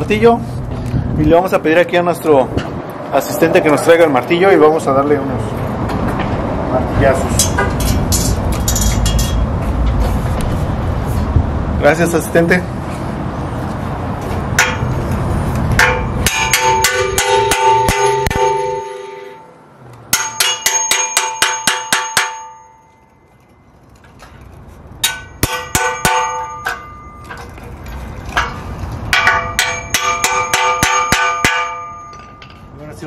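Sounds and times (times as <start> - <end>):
hammer striking metal truss: 14.6 - 15.1, 15.7 - 23.6, 25.0 - 32.8.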